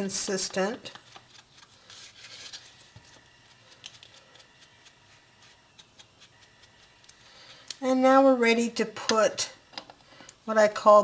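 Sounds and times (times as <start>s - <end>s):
foam tool dabbing on paper: 3.4s - 7.1s.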